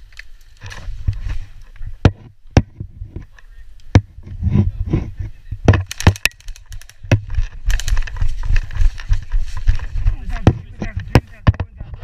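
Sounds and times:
gear clicks and knocks: 5.7s - 12.0s
footsteps through grass: 6.4s - 11.0s
low rumble of movement: 6.4s - 12.0s.

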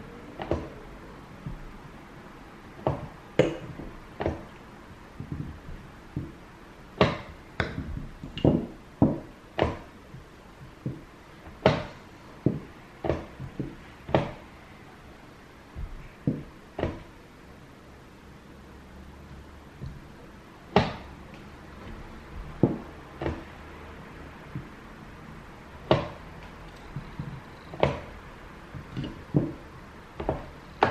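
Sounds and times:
hands tapping chess clock: 0.4s - 1.9s, 2.8s - 6.4s, 7.0s - 14.5s, 15.8s - 17.1s, 19.8s - 23.8s, 24.4s - 24.8s, 25.8s - 30.9s.

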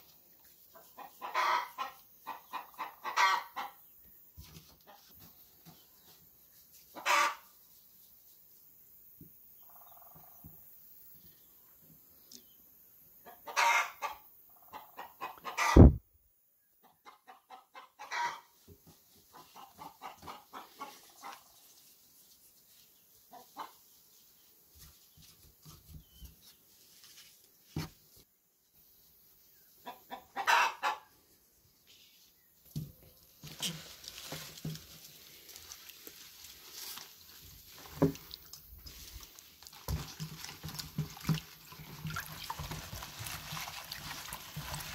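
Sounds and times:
chickens clucking: 0.6s - 6.2s, 6.8s - 7.6s, 13.2s - 16.0s, 16.8s - 21.8s, 23.2s - 24.0s, 29.5s - 31.4s.

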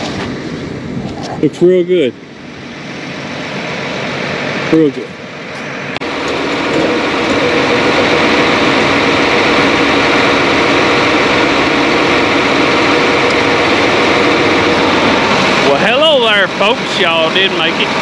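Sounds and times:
engine idling: 2.1s - 18.0s.

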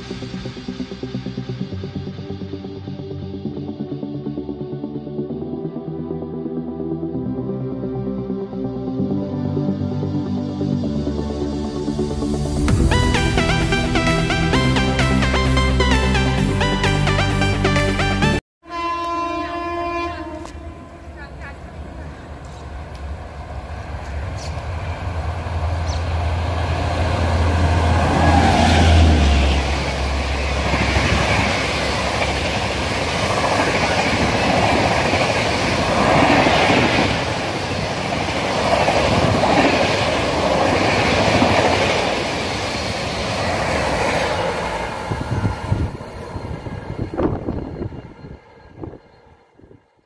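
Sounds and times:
train rushing with wheel clatter: 20.3s - 49.8s.

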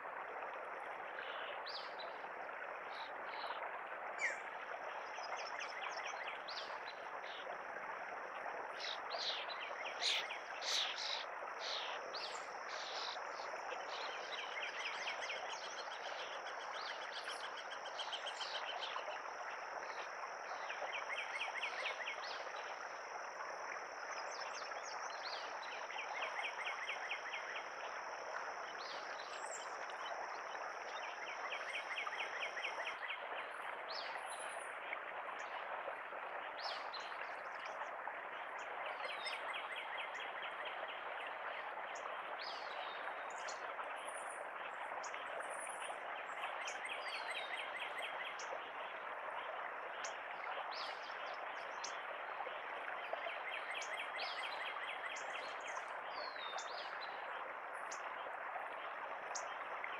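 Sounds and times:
small birds trilling: 10.0s - 11.9s.

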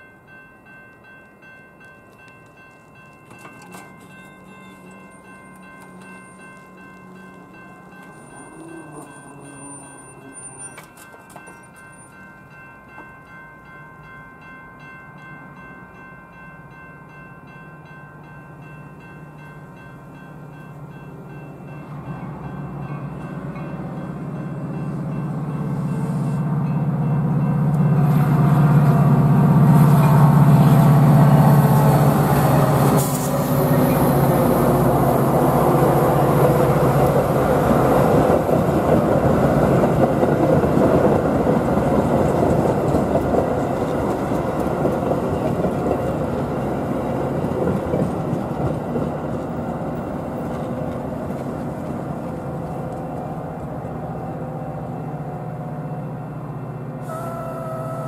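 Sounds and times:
diesel locomotive drone: 0.0s - 58.0s
train wheels clattering on rails: 0.9s - 13.2s, 21.6s - 54.0s.

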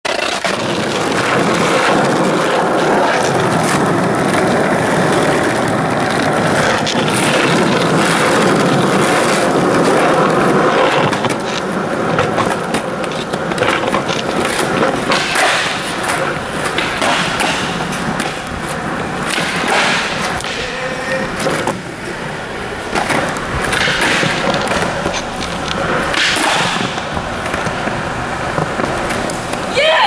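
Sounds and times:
skateboard clicks and knocks: 0.1s - 30.0s
skateboard wheels rolling on asphalt: 0.1s - 30.0s.

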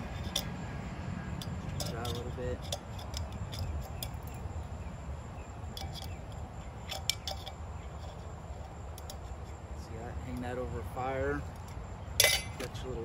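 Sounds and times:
metal clinking: 0.0s - 0.6s, 1.3s - 4.6s, 5.6s - 9.6s, 11.4s - 13.0s.

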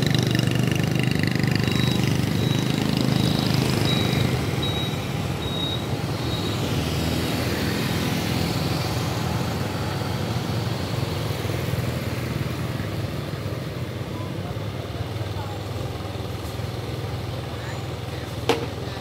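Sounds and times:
nearby engine running: 0.0s - 19.0s
road traffic noise: 0.0s - 19.0s.

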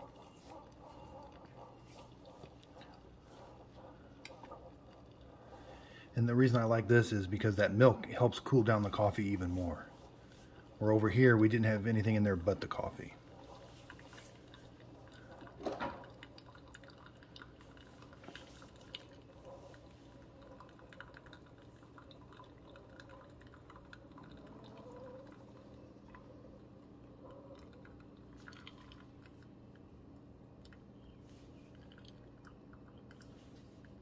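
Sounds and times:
coffee trickling into glass: 0.0s - 30.0s, 30.6s - 34.0s
low steady hum: 0.0s - 34.0s.

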